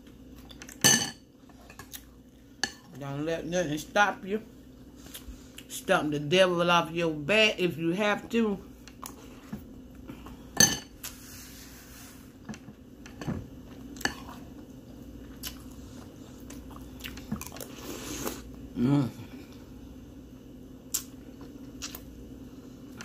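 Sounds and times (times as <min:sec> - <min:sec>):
chewing: 0:13.8 - 0:18.4
person humming: 0:18.8 - 0:19.4.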